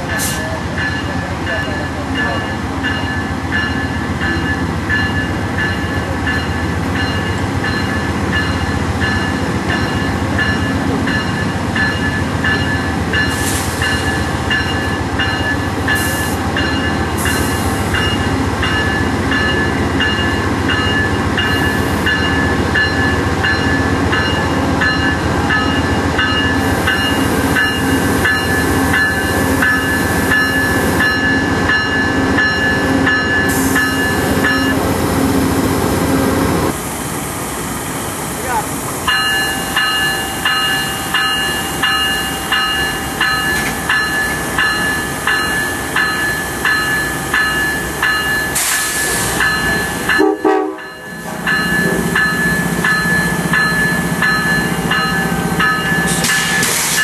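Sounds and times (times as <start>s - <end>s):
diesel locomotive engine whining: 0.0s - 57.0s
short air hisses: 56.1s - 57.0s.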